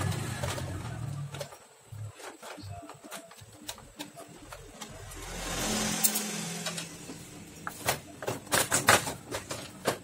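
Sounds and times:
vehicle driving past: 4.9 - 7.7.

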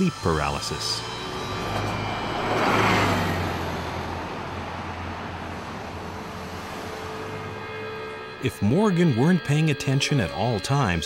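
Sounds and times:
car passing: 0.0 - 8.5
low traffic hum: 0.0 - 9.4.

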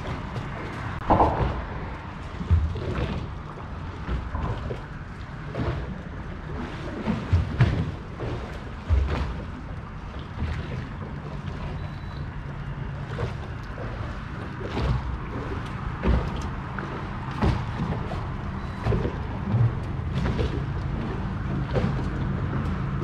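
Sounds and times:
low thumps and knocks: 0.0 - 6.2, 7.0 - 11.2, 13.1 - 23.0
wind on microphone: 0.0 - 11.3
water lapping against boat hull: 0.0 - 23.0.

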